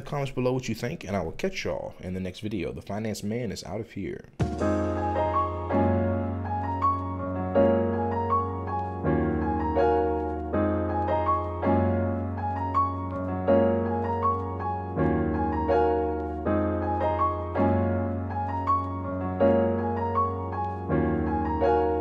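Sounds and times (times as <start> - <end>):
piano notes over chords: 4.4 - 22.0.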